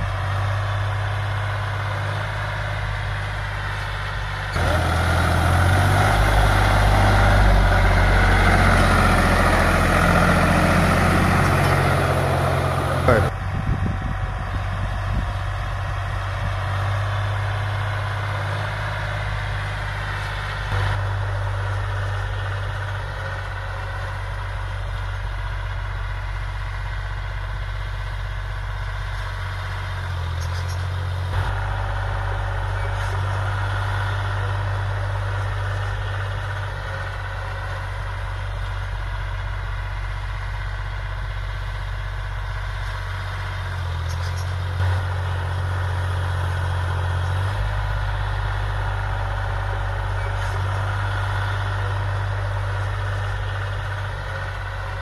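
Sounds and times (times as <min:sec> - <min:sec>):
tractor diesel engine running: 0:00.0 - 0:55.0
rotavator blades churning soil: 0:04.5 - 0:13.2.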